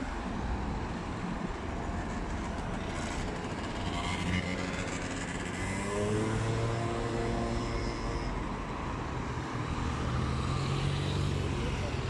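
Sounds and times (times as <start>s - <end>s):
road traffic passing: 0.0s - 12.0s
vehicle engine accelerating: 3.1s - 7.9s.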